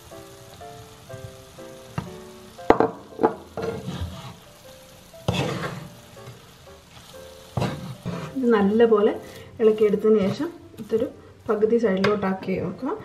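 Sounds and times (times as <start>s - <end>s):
frying sizzle: 0.0s - 13.0s
soft background music: 0.0s - 13.0s
spatula scraping a pan: 3.2s - 4.5s, 5.2s - 11.6s.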